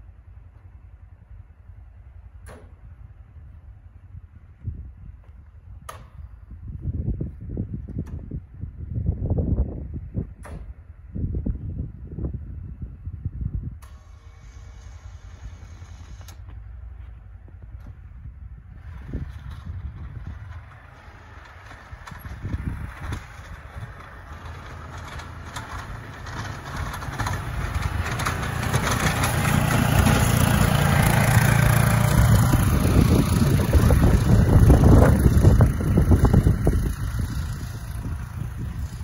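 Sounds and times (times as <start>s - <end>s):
utility vehicle engine plowing snow: 13.8s - 39.0s.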